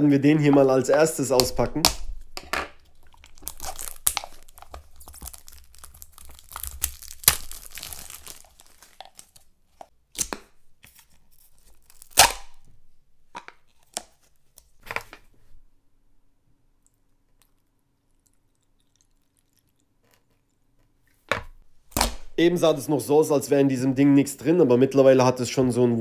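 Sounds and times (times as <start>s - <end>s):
foil wrapper crinkling: 2.8s - 9.9s, 11.0s - 12.6s.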